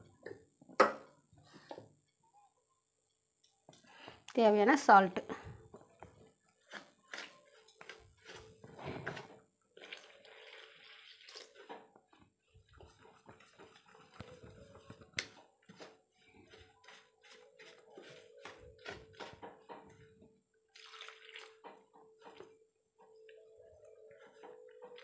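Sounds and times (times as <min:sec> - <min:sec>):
whisk scraping in steel bowl: 0:15.7 - 0:19.4.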